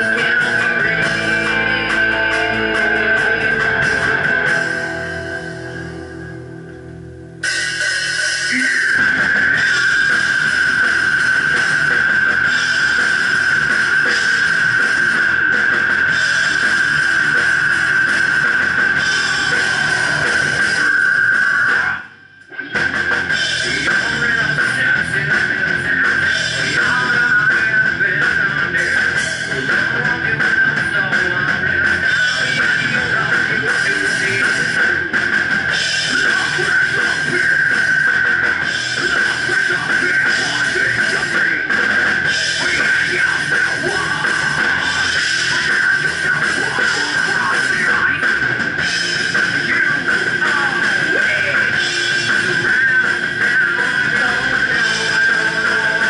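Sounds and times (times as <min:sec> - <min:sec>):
metal band playing loud: 0:00.0 - 0:56.0.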